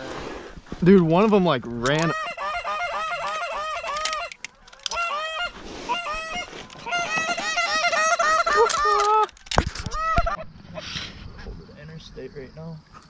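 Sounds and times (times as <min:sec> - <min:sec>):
goose honking and clucking: 0:01.8 - 0:10.9.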